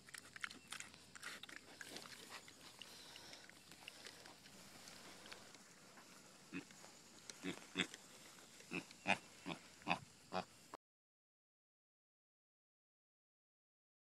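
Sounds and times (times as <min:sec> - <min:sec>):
piglet grunting: 0:06.5 - 0:06.7, 0:07.3 - 0:08.0, 0:08.7 - 0:10.5.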